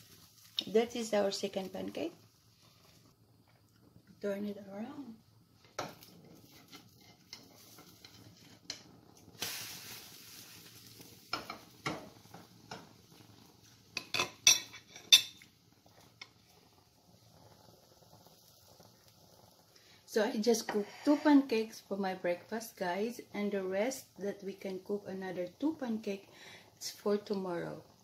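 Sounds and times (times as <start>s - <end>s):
spatula scraping frying pan: 5.8s - 13.0s, 20.6s - 21.6s
short sizzling hiss: 9.3s - 11.6s.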